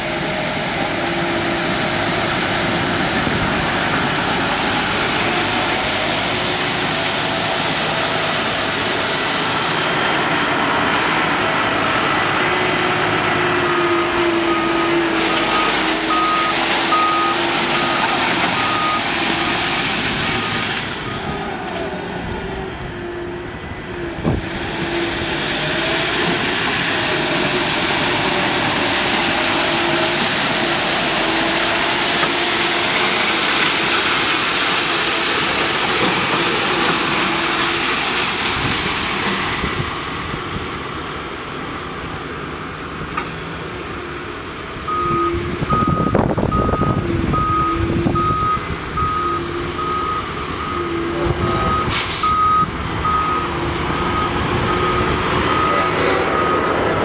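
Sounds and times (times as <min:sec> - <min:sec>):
back-up alarm beeping: 0:14.5 - 0:19.1, 0:44.9 - 0:53.5, 0:54.1 - 0:56.8
higher beep: 0:44.9 - 0:53.5.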